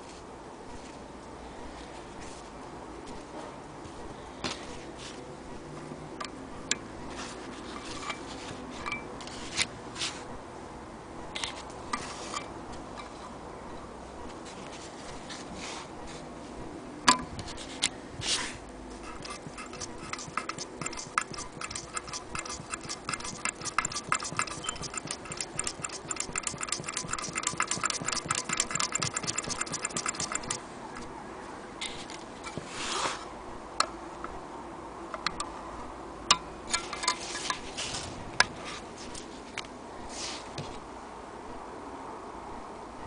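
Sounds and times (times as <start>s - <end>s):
sewing machine clicking: 19.1s - 30.6s.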